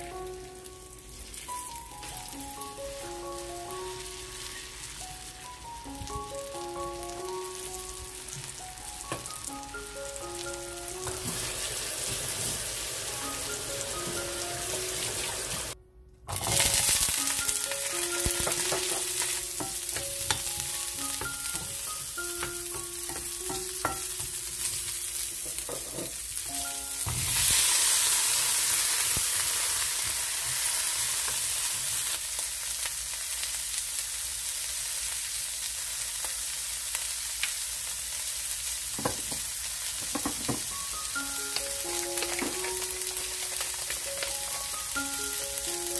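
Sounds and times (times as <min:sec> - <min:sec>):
light background melody: 0:00.0 - 0:25.4, 0:26.4 - 0:27.9, 0:40.4 - 0:45.9
food sizzling in a frying pan: 0:00.0 - 0:45.9.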